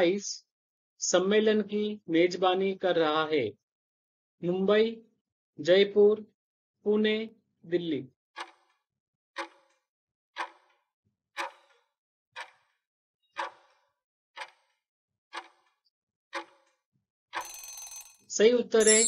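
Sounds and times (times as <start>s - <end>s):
clock ticking: 11.4s - 11.6s, 12.4s - 12.6s, 13.4s - 13.6s, 14.4s - 14.6s, 15.4s - 15.6s.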